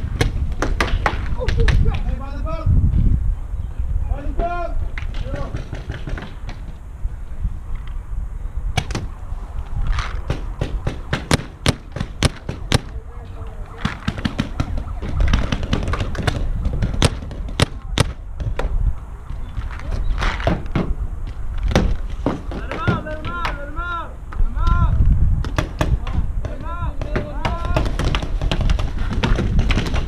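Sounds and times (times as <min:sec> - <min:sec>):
paintball markers firing: 0:09.9 - 0:13.0, 0:13.7 - 0:18.8, 0:25.4 - 0:30.0.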